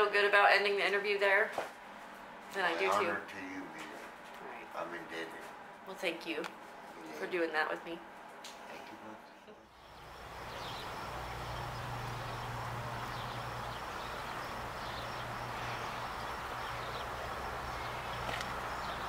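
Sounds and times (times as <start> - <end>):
low hum: 9.8 - 19.0.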